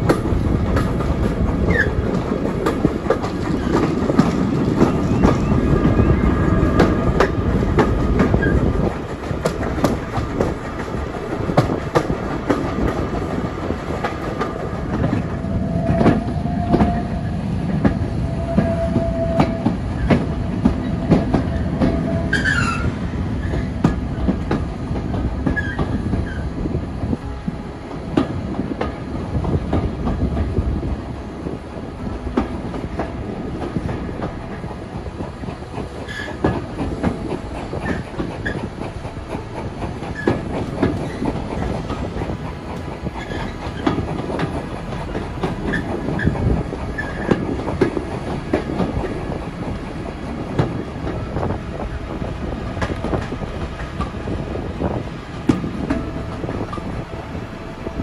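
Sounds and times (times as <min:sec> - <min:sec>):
train rumble: 0:00.0 - 0:58.0
wheels clacking over rail joints: 0:00.0 - 0:58.0
wheel squeals: 0:20.8 - 0:23.8, 0:45.1 - 0:47.4.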